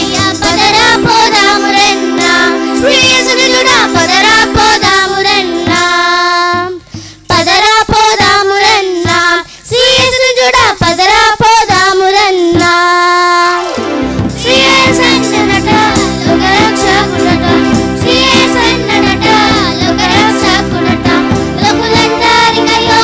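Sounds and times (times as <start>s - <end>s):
children singing: 0.0s - 6.1s, 13.5s - 23.0s
musical accompaniment: 0.0s - 11.6s, 12.5s - 23.0s.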